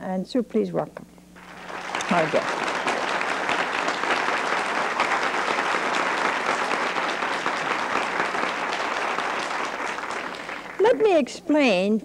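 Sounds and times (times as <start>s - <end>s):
studio audience applauding: 1.4s - 11.2s.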